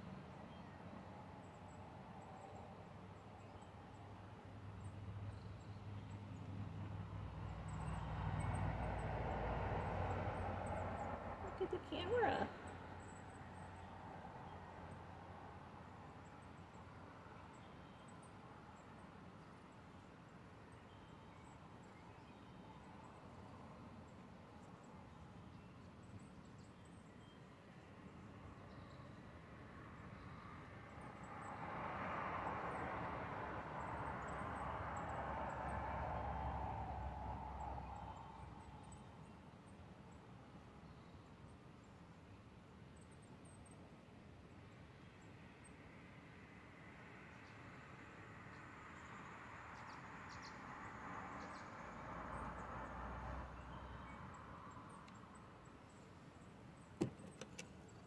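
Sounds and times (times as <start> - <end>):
faint high ticks: 55.0 - 55.3.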